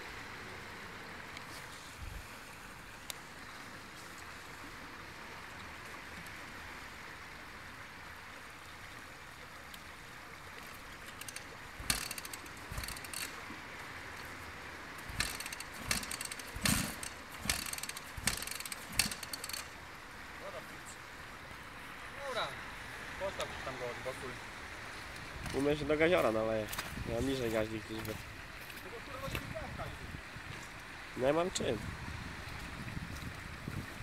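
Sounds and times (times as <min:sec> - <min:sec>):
stream water rushing: 0:00.0 - 0:34.0
dirt bike kick-start thuds: 0:11.1 - 0:13.4, 0:15.0 - 0:19.7.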